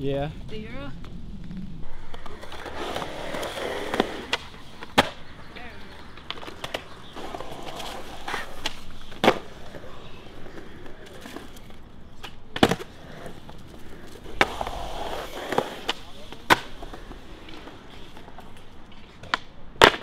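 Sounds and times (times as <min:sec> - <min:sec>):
skateboard wheels rolling on concrete: 0:00.0 - 0:20.0
skateboard popping and landing: 0:01.0 - 0:20.0.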